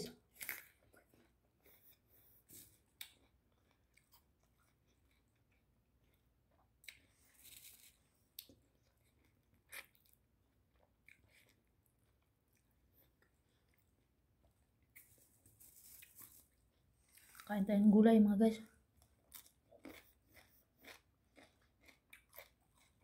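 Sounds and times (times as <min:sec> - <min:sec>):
chewing: 0:19.0 - 0:23.0.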